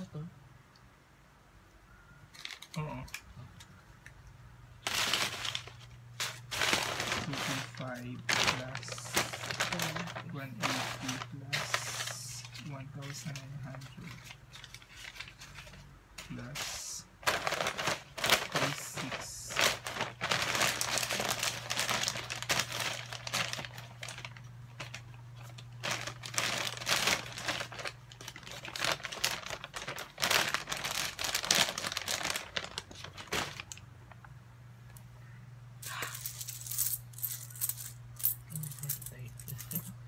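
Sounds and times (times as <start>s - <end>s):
steady low hum: 0.0s - 40.0s
plastic bag rustling: 4.8s - 34.3s.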